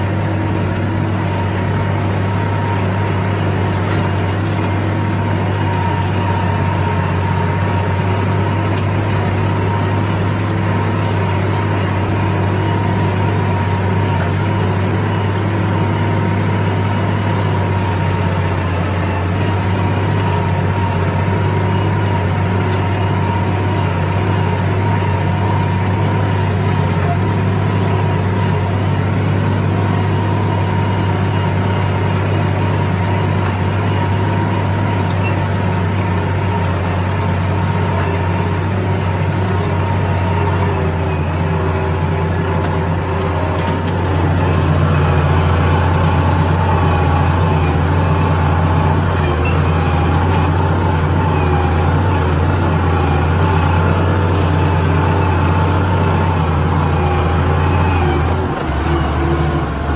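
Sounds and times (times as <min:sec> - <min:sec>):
tractor engine droning: 0:00.0 - 0:59.9.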